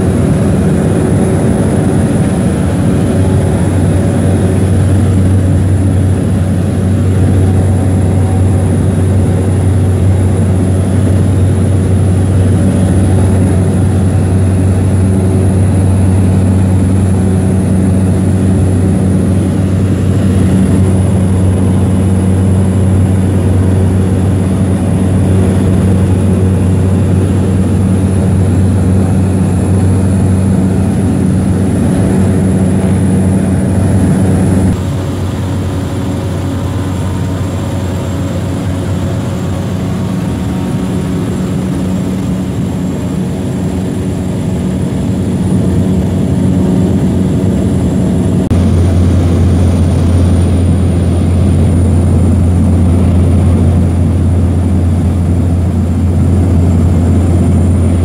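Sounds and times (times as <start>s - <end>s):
propeller plane engine drone: 0.0s - 58.0s.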